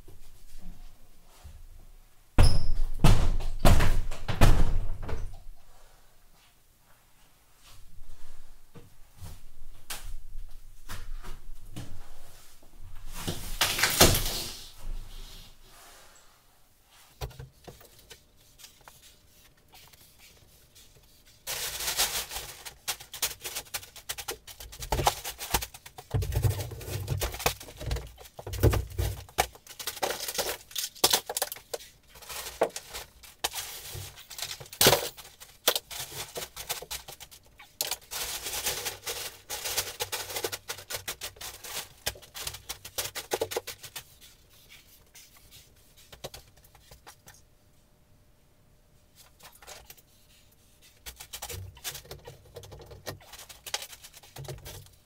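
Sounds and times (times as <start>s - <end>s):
drywall cracking and crashing: 21.5s - 43.9s.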